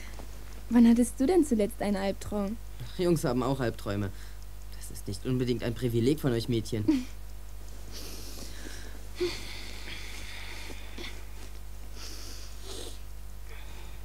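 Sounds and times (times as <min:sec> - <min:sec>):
low tape hum: 0:00.0 - 0:14.0
person breathing and sighing: 0:07.9 - 0:14.0.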